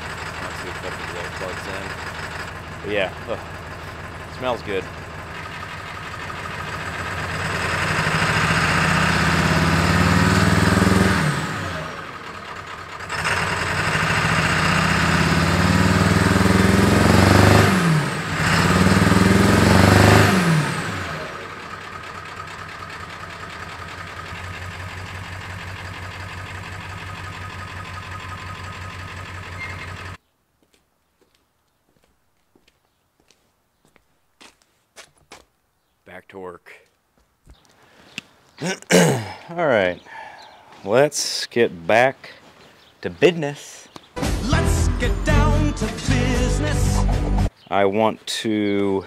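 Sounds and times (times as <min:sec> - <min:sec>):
diesel engine revving and idling: 0:00.0 - 0:30.2.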